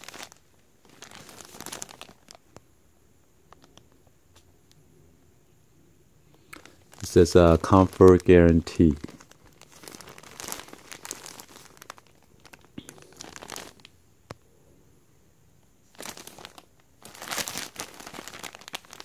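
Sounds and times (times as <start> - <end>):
plastic packaging crinkling: 0.0 - 2.5, 6.4 - 14.0, 15.9 - 19.0.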